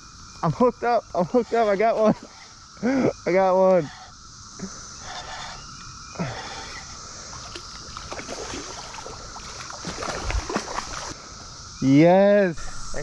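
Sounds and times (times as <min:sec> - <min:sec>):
cicada chorus drone: 0:00.0 - 0:13.0
fish splashing at surface: 0:07.4 - 0:11.2.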